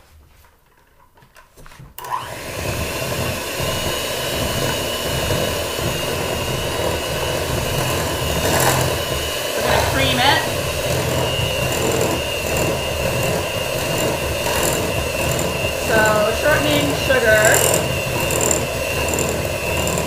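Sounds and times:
electric hand mixer running: 0:02.0 - 0:20.0.

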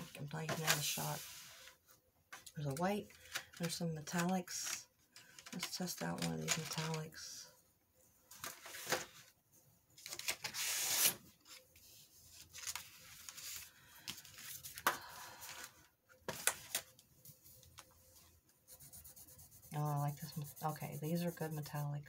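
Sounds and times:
rustling scrape: 0:00.6 - 0:01.9
colored pencil scratching on paper: 0:18.7 - 0:22.0.

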